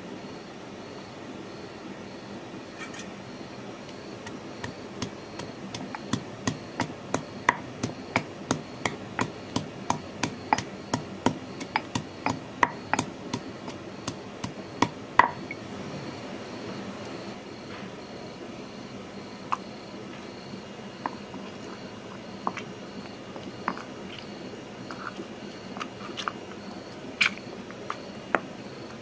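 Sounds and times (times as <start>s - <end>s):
stone pestle pounding in mortar: 4.2s - 15.5s.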